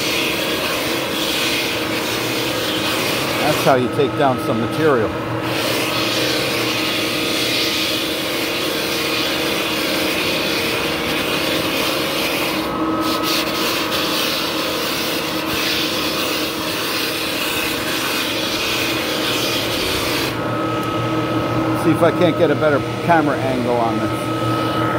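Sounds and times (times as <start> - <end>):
floor sander rasping on wood: 0.0 - 24.9
motor hum: 0.0 - 24.9.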